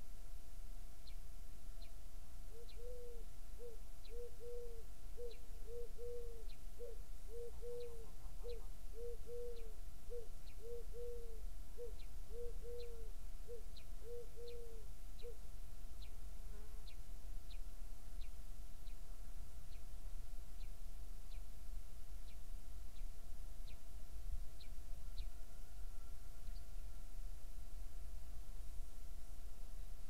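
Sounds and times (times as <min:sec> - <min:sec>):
pigeon cooing: 0:02.6 - 0:14.8
small bird high calls: 0:02.6 - 0:15.4.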